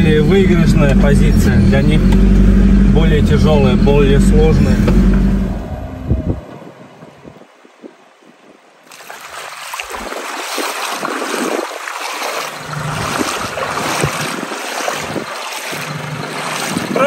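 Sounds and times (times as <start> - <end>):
small clicks and splashes: 8.9 - 17.0
stream rushing over rocks: 8.9 - 17.0.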